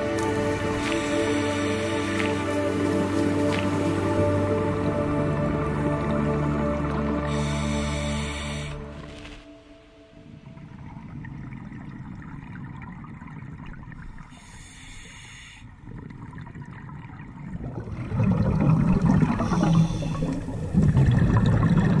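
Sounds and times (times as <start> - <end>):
underwater bubbles gurgling: 10.3 - 14.7, 15.7 - 22.0.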